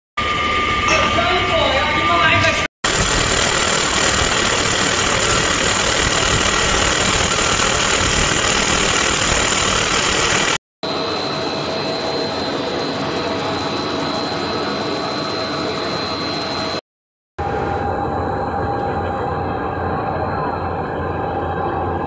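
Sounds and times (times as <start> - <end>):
thin high whine: 0.2 - 16.8, 17.4 - 22.0
food extruder machine running: 2.9 - 10.6.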